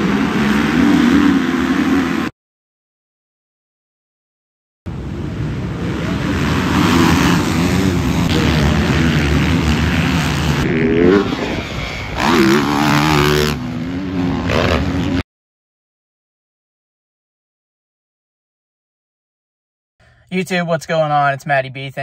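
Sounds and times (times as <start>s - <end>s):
dirt bike engines revving: 0.0s - 2.3s, 4.9s - 15.2s.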